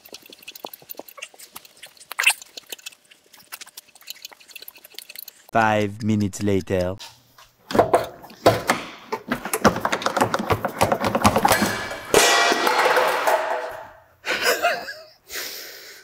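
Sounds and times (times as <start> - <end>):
loud ringing metal clang: 11.7 - 13.7.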